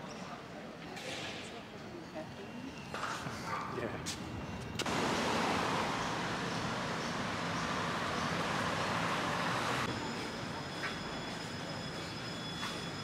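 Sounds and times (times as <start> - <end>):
city street traffic: 0.2 - 13.0.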